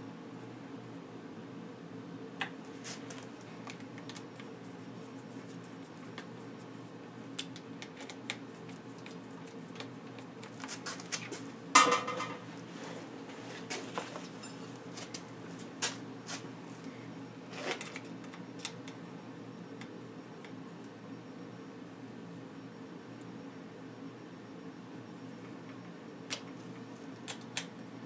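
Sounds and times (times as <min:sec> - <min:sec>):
steady low hum: 0:00.0 - 0:28.0
light metallic clicks and clinks: 0:14.0 - 0:15.2.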